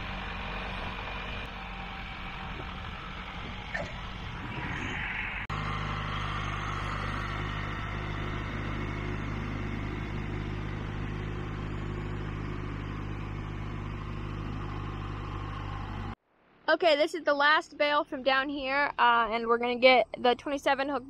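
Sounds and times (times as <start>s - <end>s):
tractor engine running: 0.0s - 16.2s.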